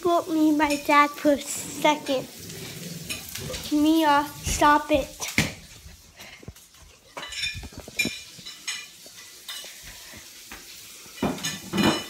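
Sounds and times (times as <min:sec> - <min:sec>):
dog scuffling on hard floor: 0:05.2 - 0:09.6.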